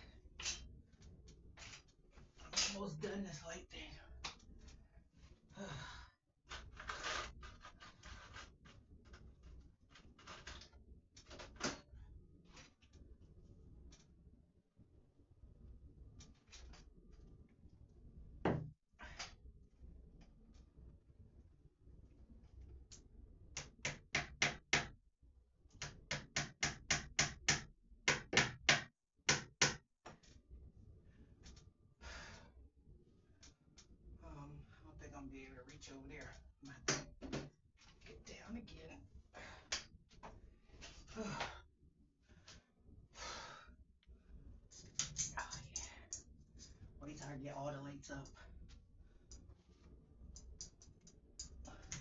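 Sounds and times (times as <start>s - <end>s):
light strip rubbing on wall: 6.5s - 11.8s
hammer tapping fasteners: 23.6s - 24.9s, 25.8s - 29.8s.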